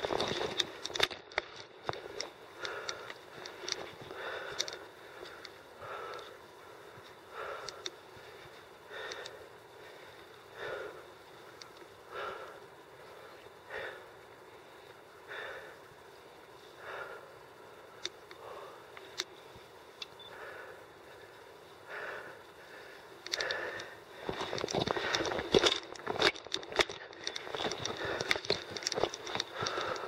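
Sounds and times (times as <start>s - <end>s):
person breathing hard: 1.9s - 11.4s, 12.0s - 19.3s, 20.2s - 30.0s
sharp clicks: 23.2s - 30.0s.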